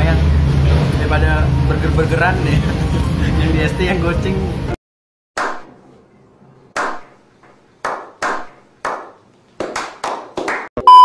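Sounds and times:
group slow-clapping: 6.8s - 10.7s.

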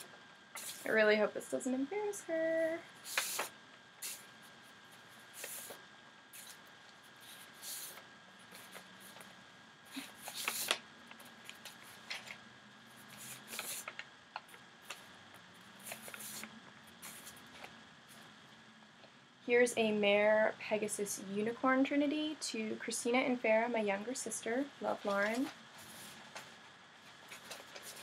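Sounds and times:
paper sheets rustling: 3.0s - 4.2s, 9.9s - 15.1s, 15.8s - 17.8s, 25.0s - 28.0s.

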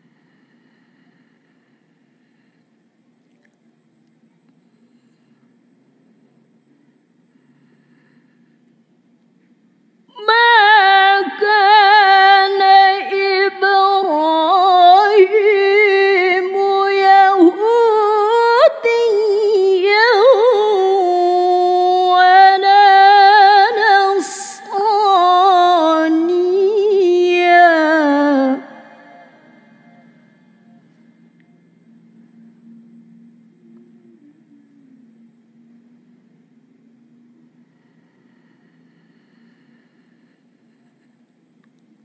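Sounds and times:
woman reciting melodically: 10.1s - 30.4s.

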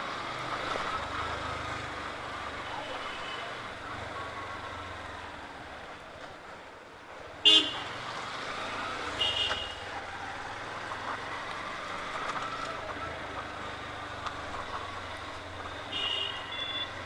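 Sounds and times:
horn beeps: 16.1s - 17.0s.

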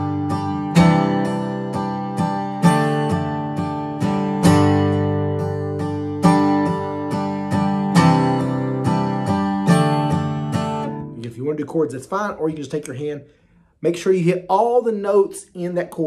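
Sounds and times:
acoustic guitar strumming: 0.0s - 12.0s.

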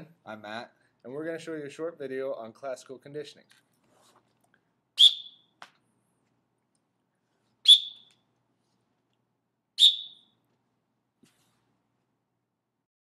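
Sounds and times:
sharp whistle blasts: 5.0s - 5.5s, 7.6s - 8.1s, 9.8s - 10.4s.

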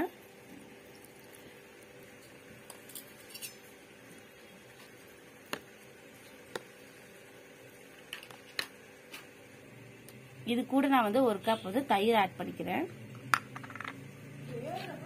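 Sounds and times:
faint steady hum: 0.0s - 15.0s.

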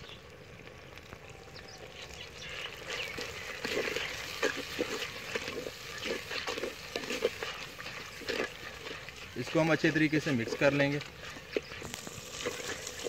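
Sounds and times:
food frying in oil: 0.0s - 13.0s
metal spatula scraping clay pot: 3.1s - 13.0s.

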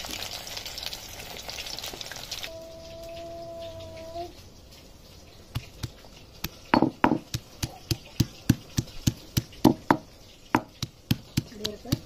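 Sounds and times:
stone pestle pounding garlic: 5.5s - 12.0s.

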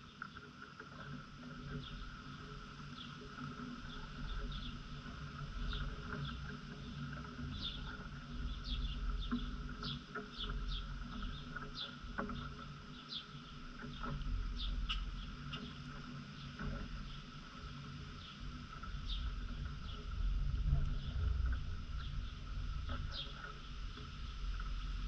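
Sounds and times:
steady background hum: 0.0s - 25.0s
small birds chirping: 5.4s - 20.2s, 21.9s - 24.9s
low rumble: 19.0s - 25.0s.

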